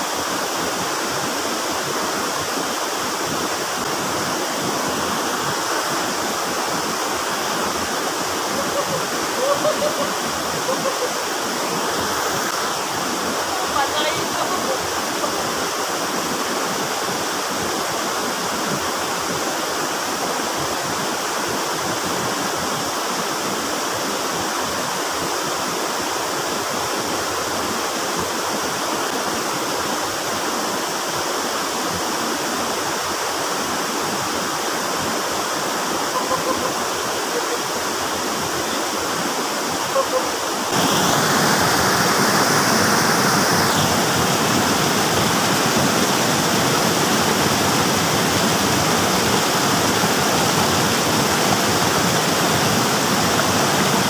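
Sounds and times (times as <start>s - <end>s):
close rush of white water: 0.0s - 54.0s
stream rushing over stones: 0.0s - 54.0s.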